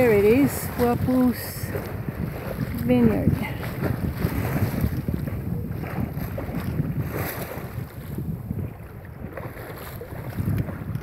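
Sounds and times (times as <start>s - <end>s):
choppy water against hull: 0.0s - 11.0s
wind buffeting microphone: 0.0s - 11.0s.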